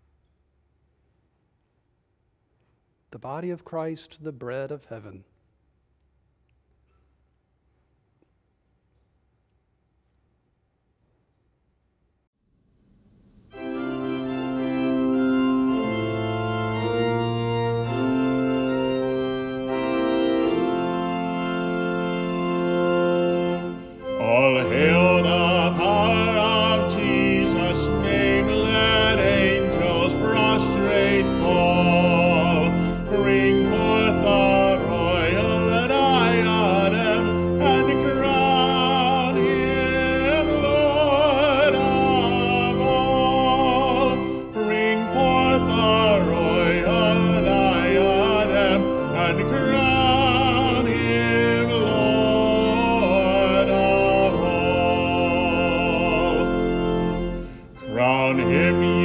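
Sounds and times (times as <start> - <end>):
organ chords: 3.1 - 5.4, 13.4 - 59.0
voices singing a hymn: 23.2 - 59.0.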